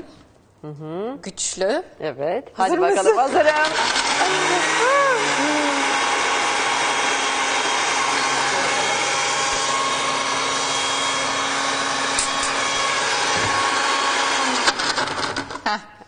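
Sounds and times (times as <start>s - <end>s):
blender motor whirring: 3.2s - 15.7s.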